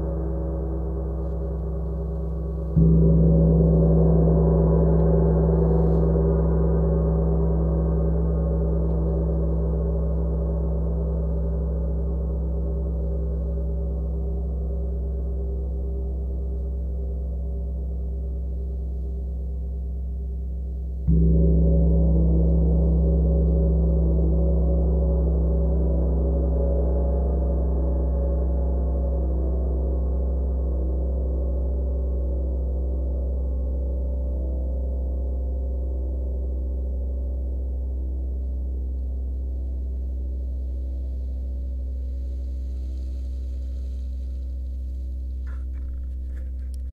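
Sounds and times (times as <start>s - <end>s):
gong struck with felt mallet: 0.2s - 12.3s, 21.0s - 28.1s.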